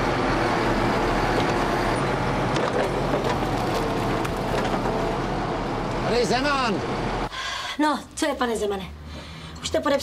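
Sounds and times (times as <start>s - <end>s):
diesel engine and hydraulics: 0.0s - 7.7s.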